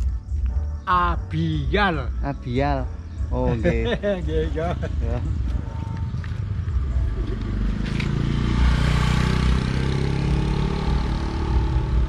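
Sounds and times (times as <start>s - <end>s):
motorcycles passing by: 3.6s - 12.0s.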